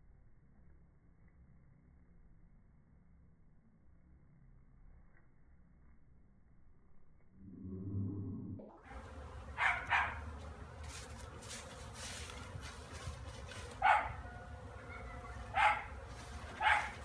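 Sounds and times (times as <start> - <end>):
honeybees humming: 8.8 - 17.0
dog barking: 9.6 - 10.2, 13.8 - 14.2, 14.8 - 16.0, 16.6 - 17.0.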